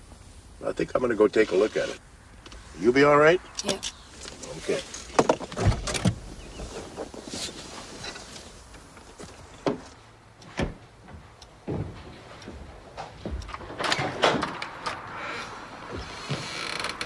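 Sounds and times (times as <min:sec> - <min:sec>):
car door thuds and clicks: 0:05.1 - 0:06.3, 0:09.6 - 0:10.8.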